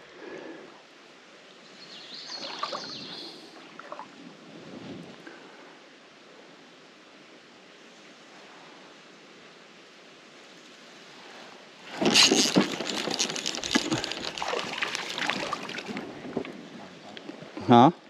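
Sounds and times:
splashing and sloshing water: 0:02.3 - 0:04.3, 0:11.9 - 0:17.1.

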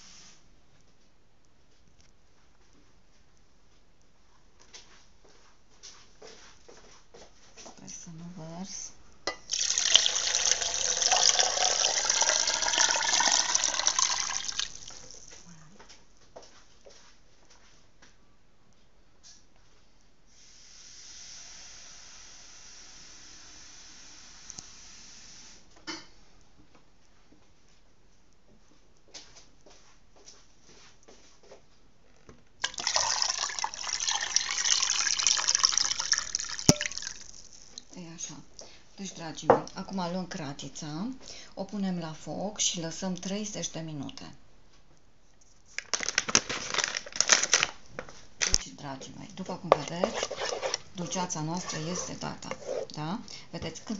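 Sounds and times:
water pouring into a pot: 0:09.5 - 0:15.3, 0:32.6 - 0:37.9.

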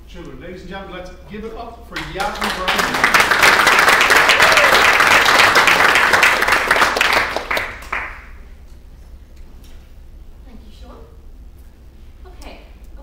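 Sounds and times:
audience applauding: 0:02.0 - 0:08.3.

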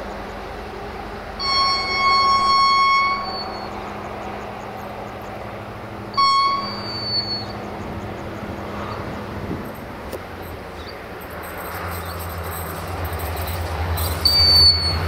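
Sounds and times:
diesel engine humming: 0:00.0 - 0:15.0
locomotive horn blasts: 0:01.4 - 0:04.1, 0:06.1 - 0:07.6.

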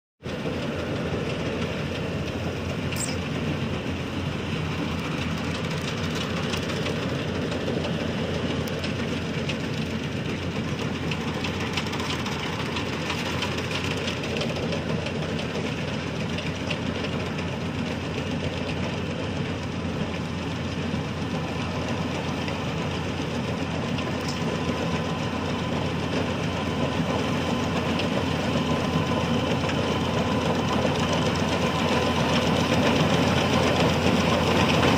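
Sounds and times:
combine harvester engine running: 0:00.2 - 0:34.9.

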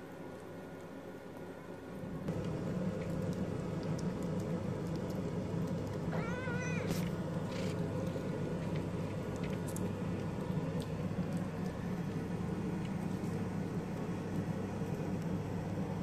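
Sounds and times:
cat meowing: 0:06.1 - 0:07.0.

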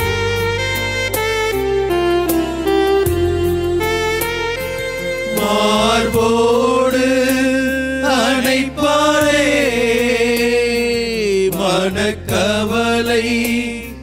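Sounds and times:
instrumental accompaniment: 0:00.0 - 0:14.0
person singing a devotional hymn: 0:05.3 - 0:14.0.

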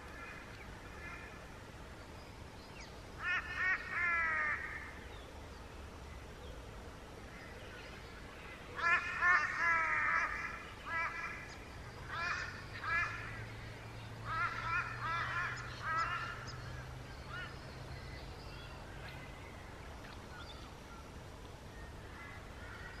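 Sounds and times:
bird calling: 0:07.4 - 0:23.0.

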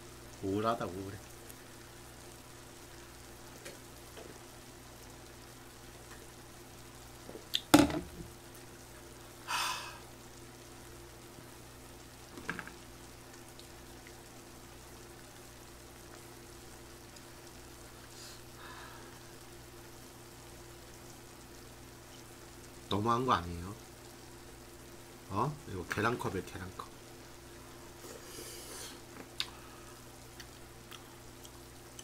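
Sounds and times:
plastic cup knocking on table: 0:07.7 - 0:08.2
short breathy hiss: 0:18.0 - 0:19.3, 0:28.0 - 0:30.0.

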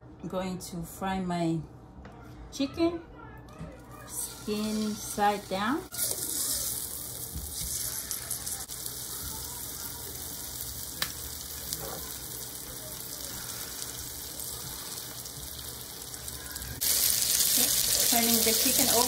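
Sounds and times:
chicken sizzling in hot oil: 0:04.2 - 0:19.0.

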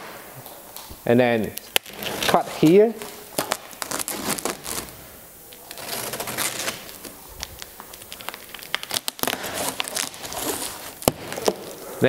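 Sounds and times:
knife cutting cardboard: 0:05.7 - 0:07.2, 0:09.0 - 0:11.8.

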